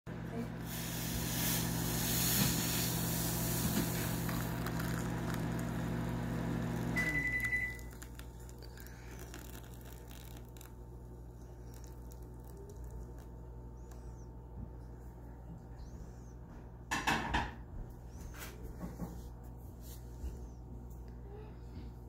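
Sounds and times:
kitchen appliance humming: 0.1s - 16.3s
short electronic beep: 7.0s - 7.9s.

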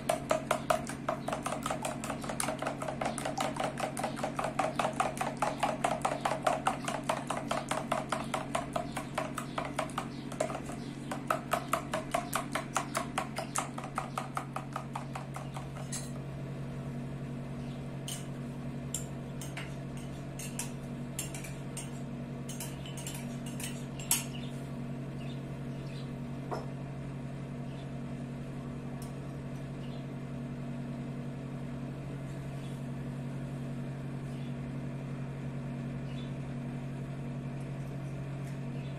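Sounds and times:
fork beating eggs in bowl: 0.0s - 16.2s, 19.0s - 24.4s
steady low hum: 0.0s - 38.9s
metal spoon clinking glass bowl: 18.9s - 24.4s.

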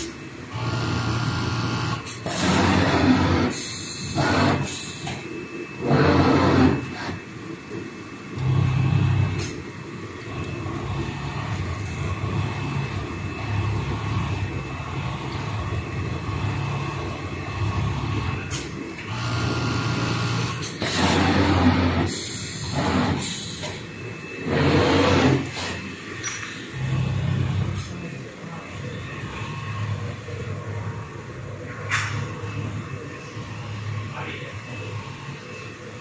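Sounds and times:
sewing machine motor hum: 0.5s - 4.8s, 5.8s - 7.2s, 19.0s - 23.8s, 24.4s - 25.8s.

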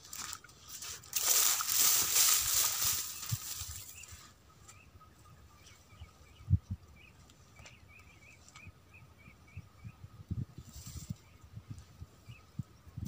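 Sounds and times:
bird chirping: 1.2s - 13.0s.

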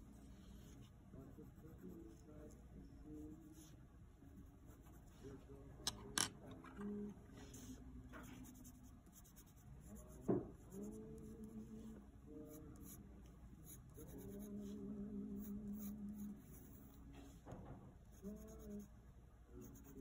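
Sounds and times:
pencil scratching on paper: 3.2s - 5.2s, 7.5s - 11.8s, 12.5s - 13.0s, 13.6s - 14.8s, 15.4s - 17.0s, 18.1s - 18.9s, 19.6s - 20.0s.

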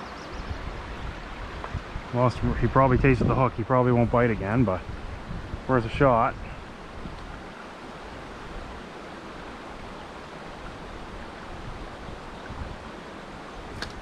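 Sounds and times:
sharp click: 13.8s - 14.0s.

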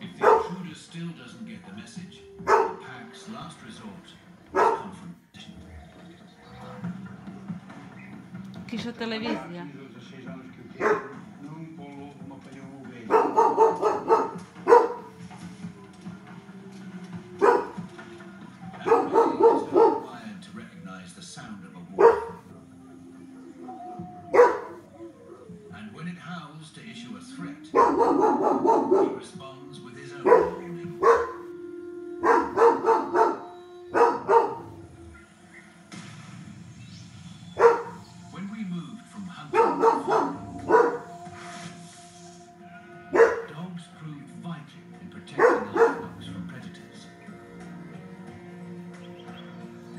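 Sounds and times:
dog barking: 0.0s - 0.8s, 2.4s - 2.9s, 4.5s - 5.0s, 10.8s - 11.3s, 13.0s - 15.2s, 17.4s - 17.9s, 18.7s - 20.2s, 21.9s - 22.5s, 24.0s - 24.9s, 27.7s - 29.3s, 30.1s - 31.5s, 32.2s - 34.8s, 37.6s - 38.1s, 39.5s - 41.3s, 43.1s - 43.6s, 45.3s - 46.2s.

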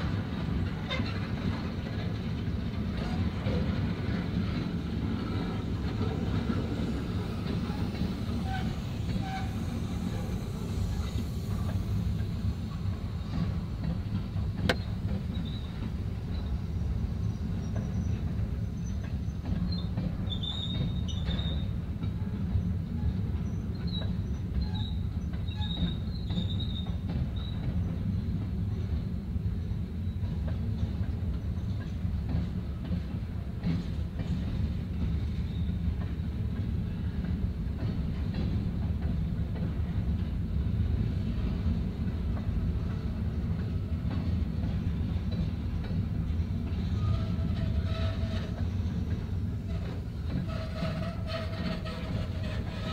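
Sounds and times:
train wheels rumbling on rails: 0.0s - 52.9s
high-pitched wheel squeals: 7.6s - 11.2s.

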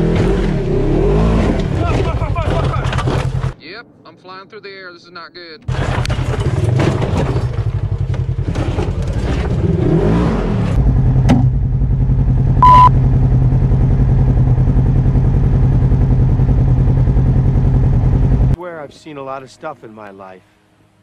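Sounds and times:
vehicle clattering and scraping: 1.3s - 3.6s, 5.6s - 11.6s
vehicle engine running: 5.7s - 18.6s
short high beep: 12.6s - 12.9s.

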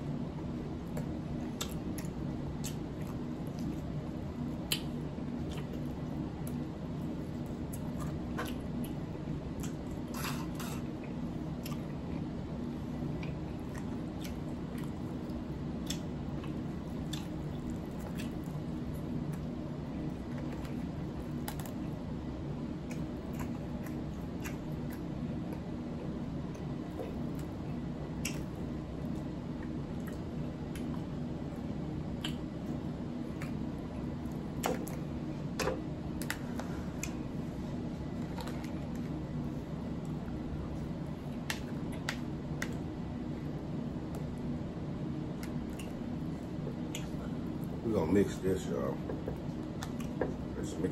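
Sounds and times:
steady low hum: 0.0s - 50.9s
chewing: 0.8s - 12.4s, 13.0s - 22.0s, 22.8s - 25.7s, 26.4s - 31.1s, 32.1s - 37.2s, 45.4s - 47.8s, 49.4s - 50.4s
sharp wet clicks: 28.2s - 28.5s, 32.2s - 32.4s.

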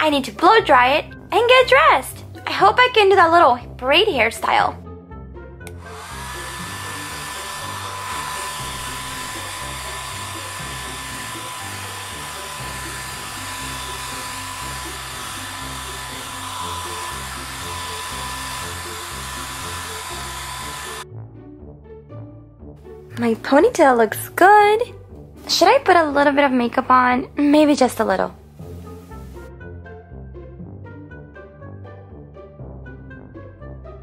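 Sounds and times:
soft background music: 0.0s - 34.0s
hair dryer blowing: 5.7s - 21.0s, 28.7s - 29.5s.

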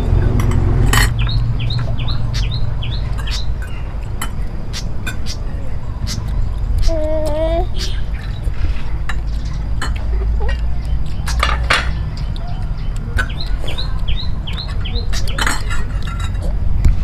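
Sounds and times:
bird chirping: 1.0s - 17.0s
spoons clinking against bowls: 3.1s - 5.4s, 9.0s - 12.4s, 14.6s - 16.5s.

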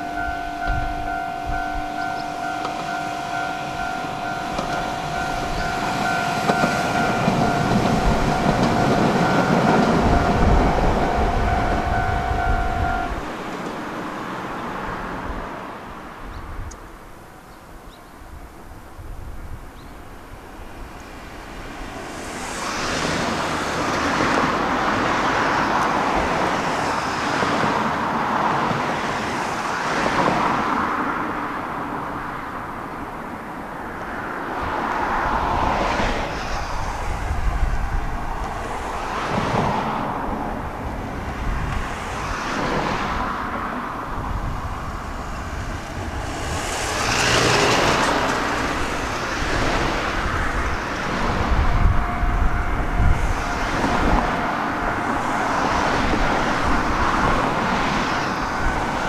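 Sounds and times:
cars passing: 0.0s - 59.0s.

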